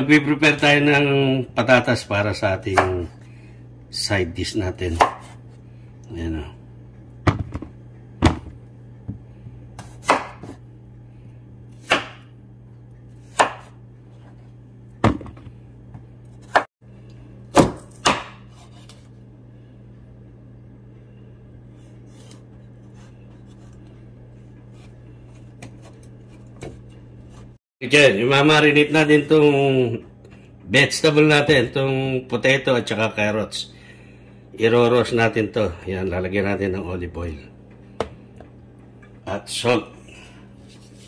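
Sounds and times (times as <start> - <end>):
steady low hum: 0.0 - 41.0
knife chopping on cutting board: 2.7 - 3.1, 4.9 - 5.4, 9.8 - 10.6, 11.7 - 12.3, 13.2 - 13.8, 16.4 - 16.7, 17.5 - 19.0.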